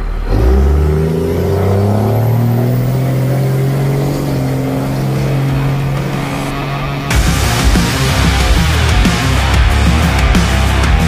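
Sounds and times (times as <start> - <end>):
truck engine accelerating: 0.0 - 11.0.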